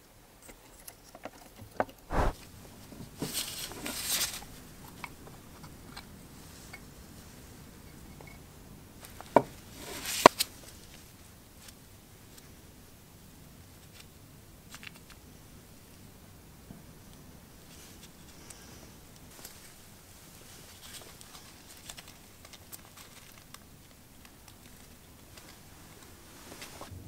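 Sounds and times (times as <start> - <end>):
rustling: 2.1 - 2.4, 17.7 - 26.9.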